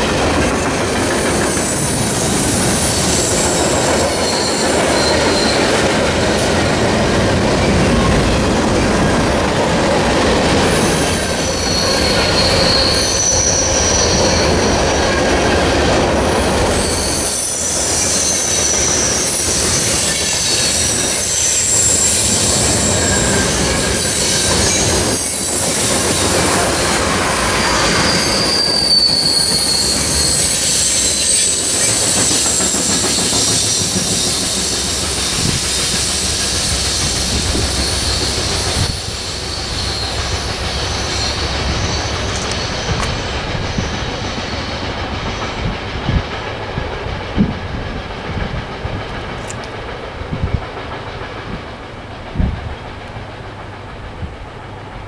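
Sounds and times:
freight train rolling past: 0:00.0 - 0:55.0
high-pitched wheel squeal: 0:01.4 - 0:06.6, 0:10.7 - 0:15.2, 0:16.4 - 0:45.0.

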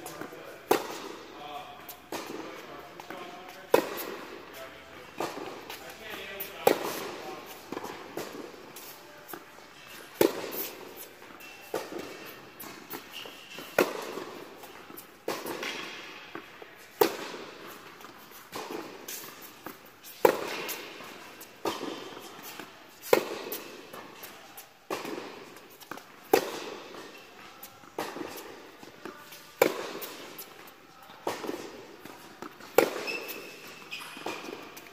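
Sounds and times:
tennis ball bouncing: 0:00.0 - 0:34.9
tennis ball off rackets: 0:00.0 - 0:34.9.

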